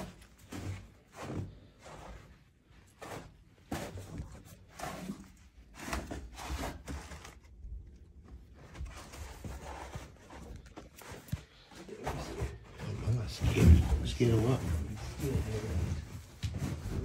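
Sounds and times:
footsteps and movement: 0.0s - 17.0s.

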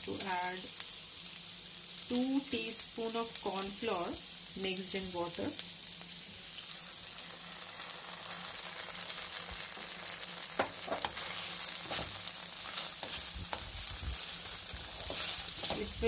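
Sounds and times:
food sizzling in a hot pan: 0.0s - 16.0s
spatula knocking and scraping a pan: 10.6s - 13.8s, 14.9s - 16.0s.

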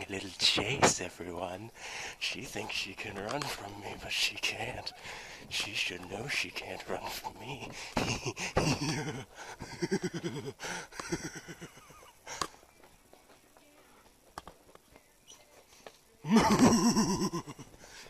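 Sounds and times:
people panting: 1.7s - 2.2s, 4.9s - 5.5s, 7.1s - 12.9s, 15.4s - 18.0s
people laughing: 4.6s - 12.6s, 16.2s - 18.0s.

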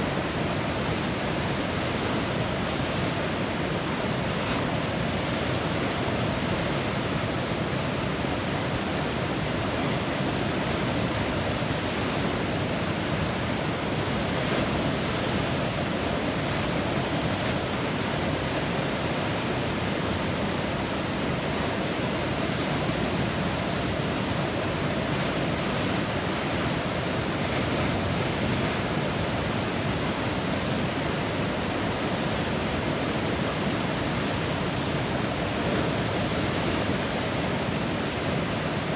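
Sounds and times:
river rapids rushing: 0.0s - 38.9s.

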